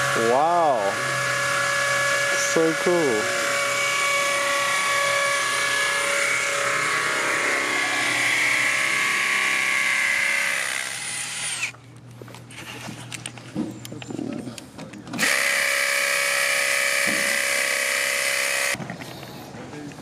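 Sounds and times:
cordless drill whining: 0:00.0 - 0:11.8, 0:15.2 - 0:18.8.

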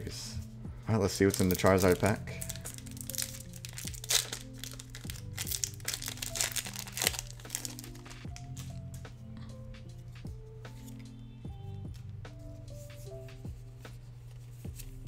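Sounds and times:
calm background music: 0:00.0 - 0:15.0
foil wrapper crinkling: 0:01.1 - 0:08.8.

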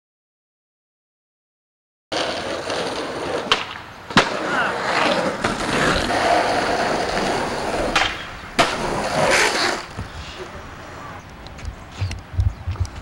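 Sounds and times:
skateboard clacking on ground: 0:02.1 - 0:10.5
skateboard wheels rolling on concrete: 0:02.1 - 0:13.0.

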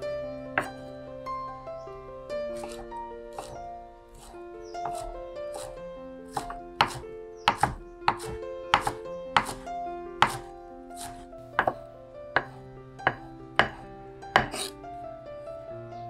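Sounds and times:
soft background music: 0:00.0 - 0:16.0
knife chopping on wooden board: 0:02.6 - 0:11.8, 0:12.4 - 0:13.8, 0:14.4 - 0:14.8.

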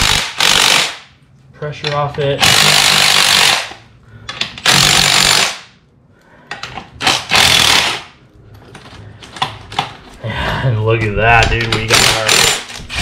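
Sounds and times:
impact driver running: 0:00.0 - 0:01.0, 0:02.4 - 0:03.7, 0:04.6 - 0:05.6, 0:07.0 - 0:08.0, 0:11.7 - 0:13.0.

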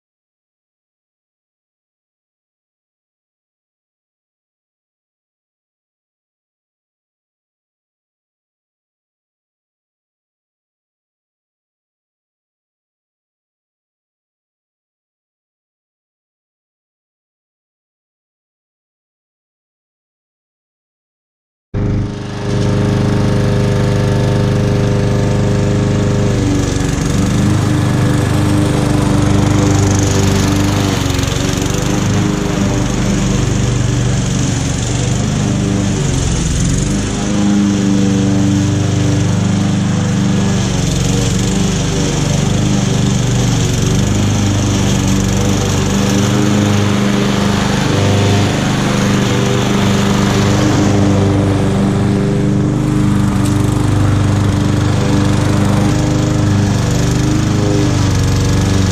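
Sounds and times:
petrol lawn mower running: 0:21.8 - 0:58.9.

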